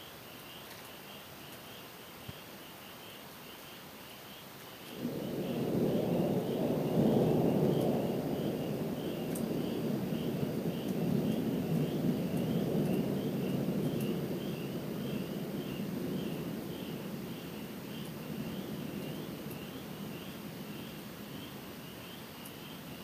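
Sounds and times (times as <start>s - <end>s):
distant thunder rolling: 4.9s - 23.0s.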